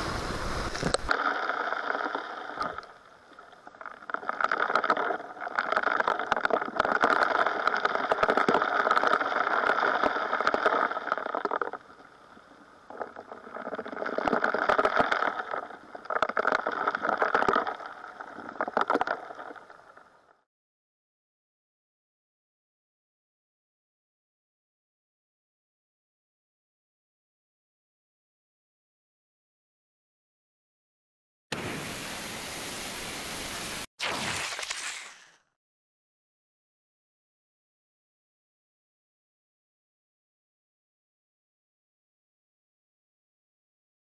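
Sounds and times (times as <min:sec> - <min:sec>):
water and gravel rushing through nozzle: 0:00.0 - 0:12.3, 0:31.6 - 0:35.4.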